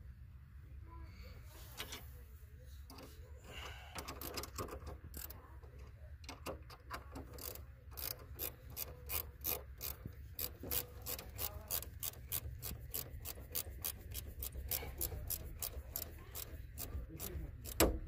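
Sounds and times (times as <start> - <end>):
ratchet wrench clicking: 7.2 - 18.0.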